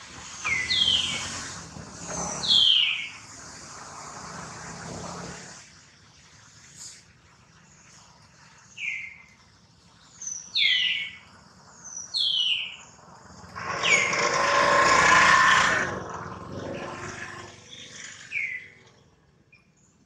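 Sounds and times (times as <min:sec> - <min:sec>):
rough hissing sound: 0:00.0 - 0:05.8
high falling animal calls: 0:00.2 - 0:03.3, 0:13.6 - 0:18.8.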